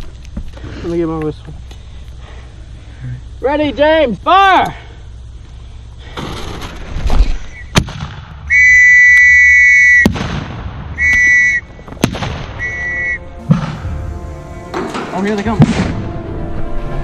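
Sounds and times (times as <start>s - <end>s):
firework bangs: 7.7s - 9.2s, 9.8s - 14.0s
whistle blasts: 8.5s - 10.2s, 11.0s - 11.8s, 12.5s - 13.4s.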